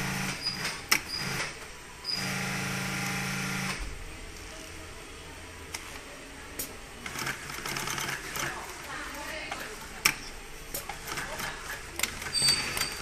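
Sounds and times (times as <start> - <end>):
sewing machine stitching: 10.9 - 13.0.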